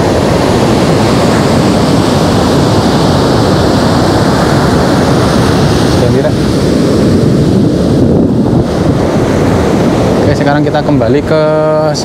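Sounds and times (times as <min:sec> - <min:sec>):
ocean waves breaking on beach: 0:00.0 - 0:12.0.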